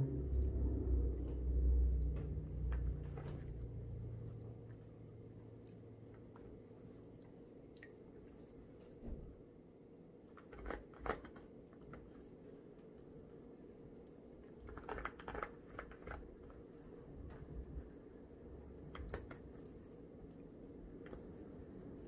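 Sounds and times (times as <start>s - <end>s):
low room hum: 0.0s - 22.0s
utensil clicks and scrapes: 10.2s - 12.3s, 14.4s - 17.6s.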